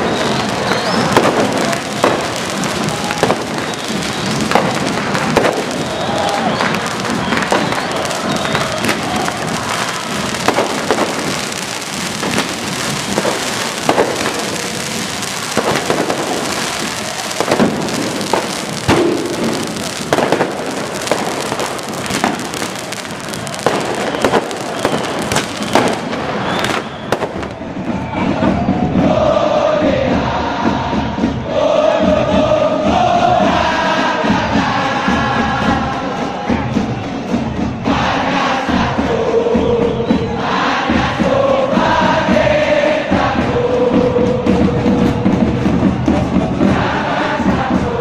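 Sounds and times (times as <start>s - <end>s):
crackling hiss of pyrotechnics: 0.0s - 27.8s
fireworks bangs: 0.0s - 29.9s
crowd chanting: 0.0s - 48.0s.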